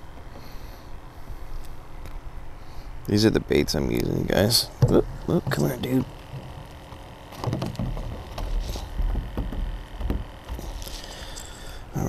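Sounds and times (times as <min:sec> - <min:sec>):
soft knocks: 0:04.8 - 0:11.3.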